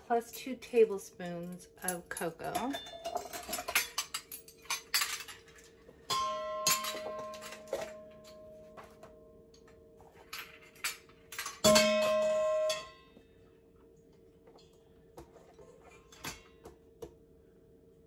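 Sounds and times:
metal spoons clinking: 1.8 - 8.4, 10.2 - 13.0.

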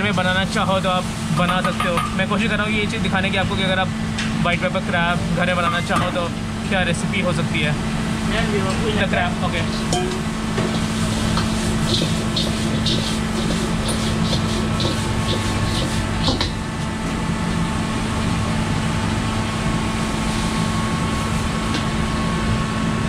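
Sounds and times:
gas burner and extractor roar: 0.0 - 23.0
metal ladle scraping wok: 10.7 - 16.5
food sizzling in wok: 10.7 - 16.6.

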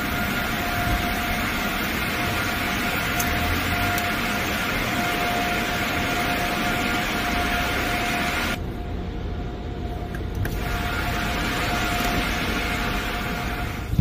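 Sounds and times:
mid-pitched hum: 0.0 - 14.0
car wash equipment rushing: 10.4 - 14.0.

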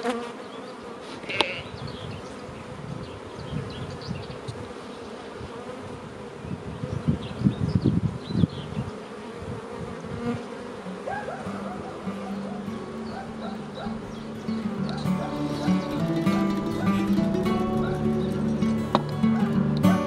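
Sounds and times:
honeybees buzzing: 0.0 - 20.0
low rumbling: 12.8 - 20.0.

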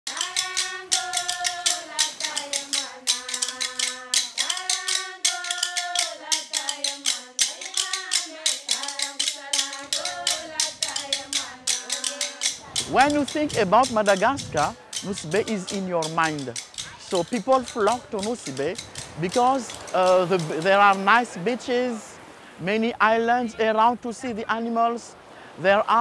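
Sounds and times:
women singing together: 0.1 - 17.4
fast percussive clicks: 0.1 - 21.3.

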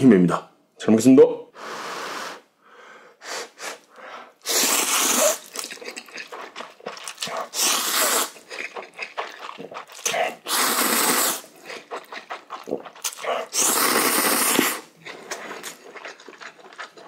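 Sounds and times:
sucking mouth noises: 3.2 - 17.0
man slurping noodles: 4.4 - 17.0.

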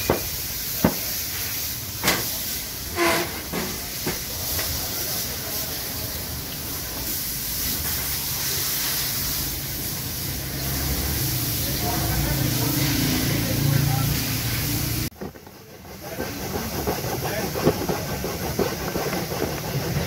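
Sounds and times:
steady hiss: 0.0 - 15.2.

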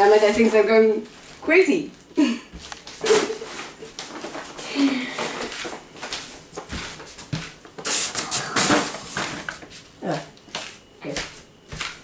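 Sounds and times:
groceries rustling: 2.6 - 12.0.

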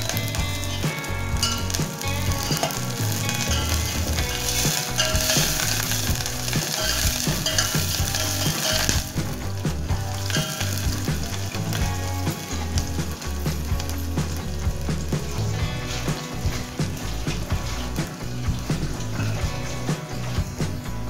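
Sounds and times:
onions sizzling in hot oil: 1.4 - 13.9
ladle stirring in a pot: 2.5 - 9.3.

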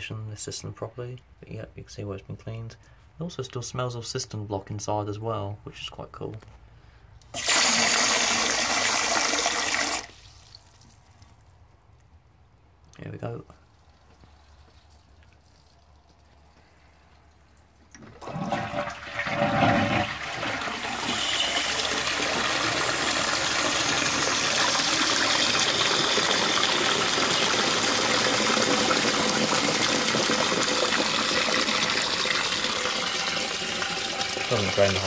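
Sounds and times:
toilet cistern flushing: 7.3 - 10.2, 18.0 - 35.0
cistern refilling with water: 7.3 - 11.5, 13.9 - 35.0.

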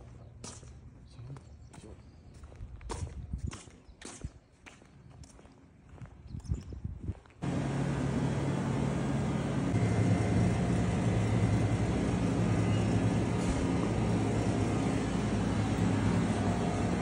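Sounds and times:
refrigerated display cases humming: 7.4 - 17.0.

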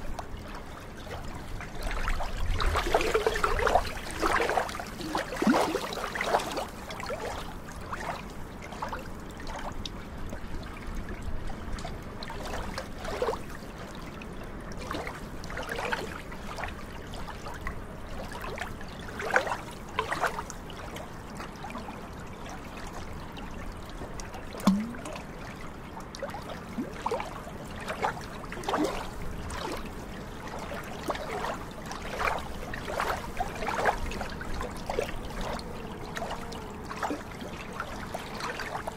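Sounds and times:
small waves lapping at shoreline: 0.0 - 38.9
water plop: 24.5 - 25.4.

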